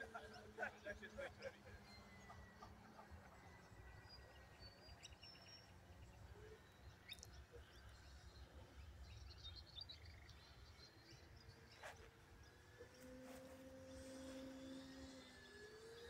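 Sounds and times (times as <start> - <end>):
distant bird chirps: 0.0 - 16.0.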